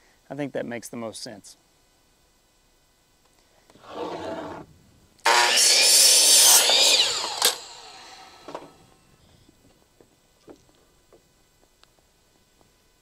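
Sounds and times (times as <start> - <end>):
miter saw cutting wood: 5.2 - 8.8.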